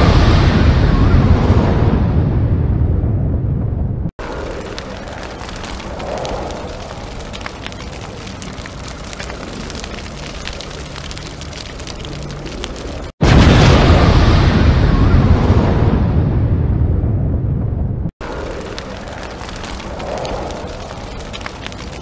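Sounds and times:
crackling noise with clicks: 4.2s - 13.2s, 18.2s - 22.0s.

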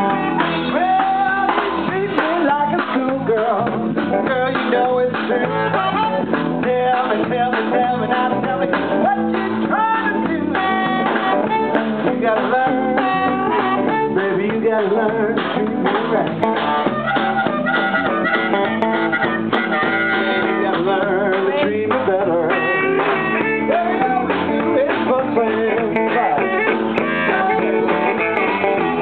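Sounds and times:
live blues band playing: 0.0s - 29.0s
harmonica wailing: 9.1s - 14.4s, 16.7s - 21.2s, 26.2s - 29.0s.

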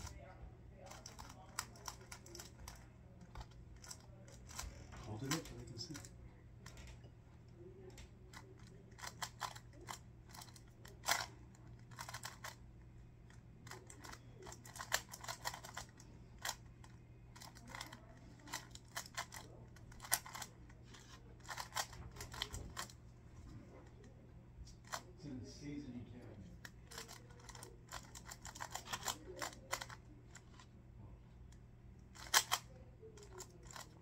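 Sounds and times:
puzzle cube plastic clicks: 0.9s - 6.9s, 8.3s - 12.6s, 13.6s - 23.0s, 26.6s - 30.7s, 32.1s - 34.0s.

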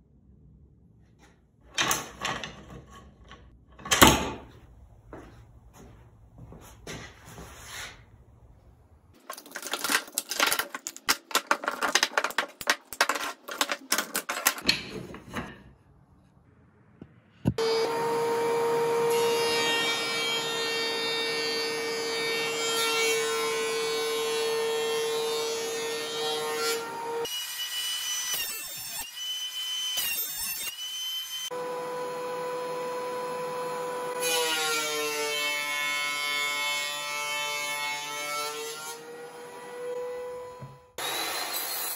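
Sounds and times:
thickness planer motor whine: 17.6s - 22.6s, 31.5s - 34.2s.

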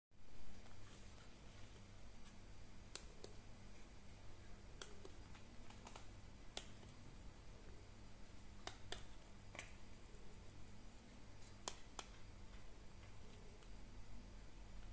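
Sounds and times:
faint low hum: 0.2s - 14.9s.

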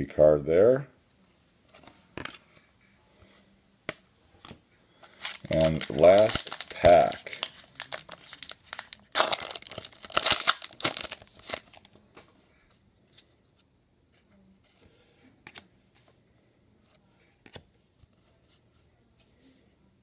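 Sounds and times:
foil wrapper tearing and crinkling: 5.2s - 11.9s.

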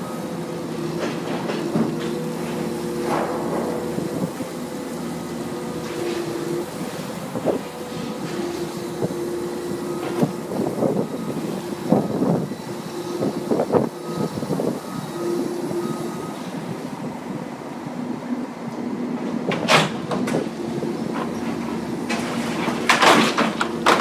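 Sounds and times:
excavator engine and hydraulic drone: 0.0s - 24.0s
hydraulic squeals: 9.9s - 16.5s.

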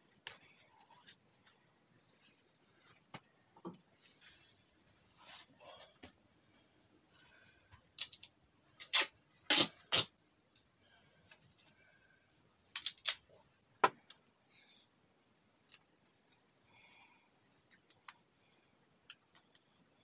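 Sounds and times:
tape ripping off roll: 8.8s - 10.1s.

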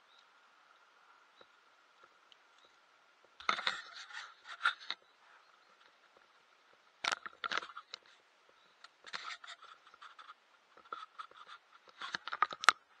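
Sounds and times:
faint steady hum: 0.0s - 13.0s
scraping and rustling on microphone: 3.4s - 13.0s.

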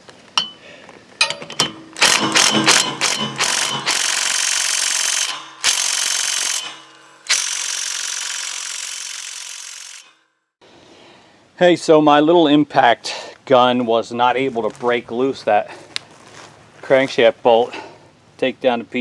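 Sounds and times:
impact gun hammering: 1.2s - 7.4s.

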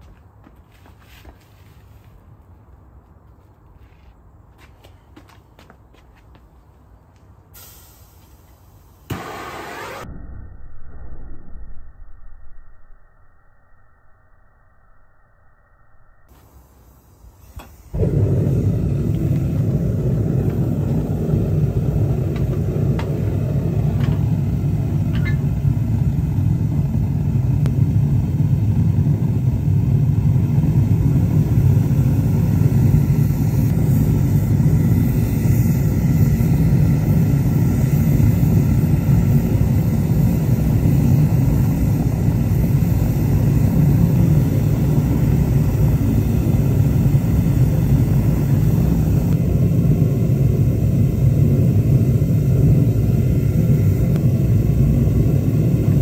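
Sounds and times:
gas burner rushing: 7.6s - 10.1s, 16.4s - 56.0s.

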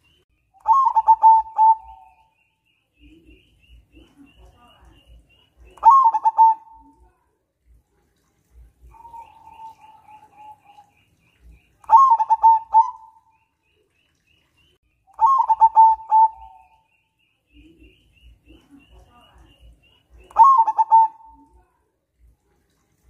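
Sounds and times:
dove cooing: 0.6s - 2.3s, 5.8s - 7.0s, 8.8s - 11.0s, 11.9s - 13.3s, 15.2s - 16.8s, 20.2s - 21.6s
high bird chirps: 8.9s - 21.5s.

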